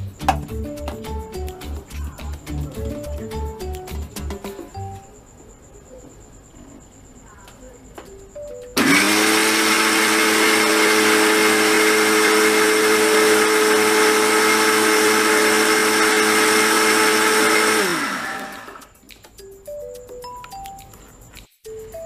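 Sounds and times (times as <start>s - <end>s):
mixer grinder running: 8.8s - 18.9s.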